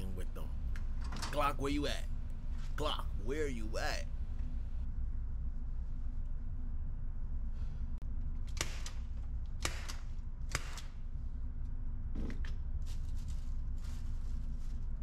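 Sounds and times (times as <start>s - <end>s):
steady low hum: 0.0s - 15.0s
gunshot cracks: 9.6s - 10.9s.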